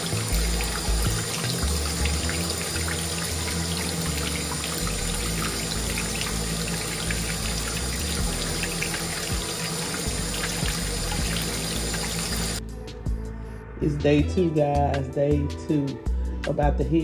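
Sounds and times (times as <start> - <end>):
water pouring into sink: 0.0 - 12.6
background music with bass line: 0.0 - 17.0.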